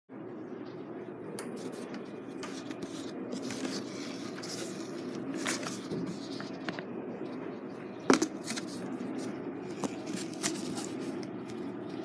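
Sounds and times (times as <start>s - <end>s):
low room hum: 0.1s - 12.0s
cardboard rustling and scraping: 1.6s - 6.8s, 8.1s - 11.6s.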